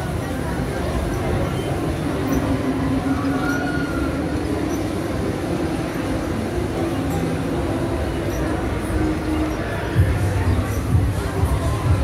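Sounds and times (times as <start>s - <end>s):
faint wheel squeal: 1.0s - 5.1s, 8.1s - 9.8s.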